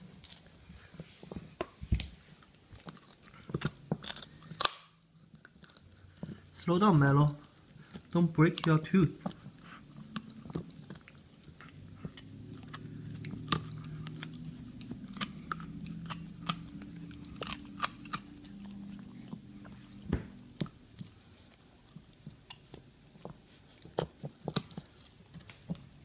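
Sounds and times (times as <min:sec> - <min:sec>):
dog gnawing a hard chew: 0:02.3 - 0:26.0
low hum: 0:09.3 - 0:21.7.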